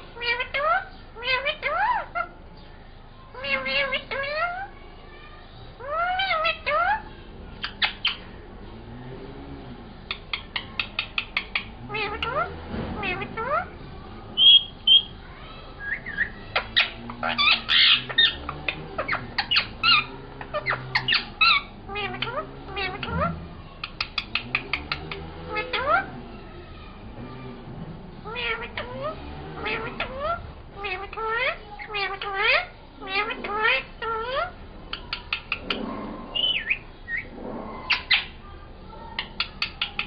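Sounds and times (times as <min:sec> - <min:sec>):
parakeet calling and chattering: 0:00.0 - 0:08.9, 0:09.8 - 0:27.3, 0:28.2 - 0:40.0.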